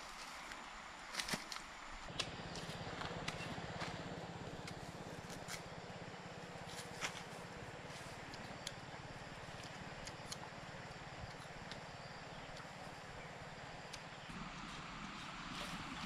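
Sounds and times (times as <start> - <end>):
low steady hum: 0.0 - 16.0
knife peeling and cutting fruit: 4.6 - 5.8, 8.1 - 13.0.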